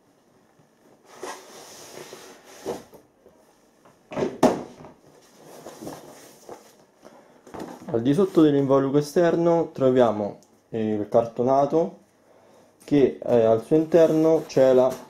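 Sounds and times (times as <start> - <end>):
cardboard scraping and rustling: 1.0 - 3.0, 5.1 - 6.8, 13.7 - 15.0.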